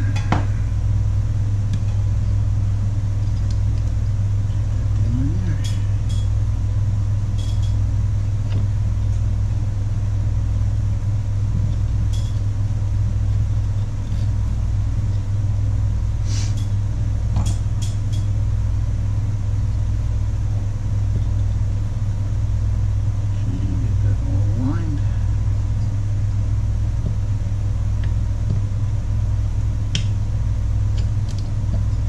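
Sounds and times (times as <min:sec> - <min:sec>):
low hum: 0:00.0 - 0:32.0.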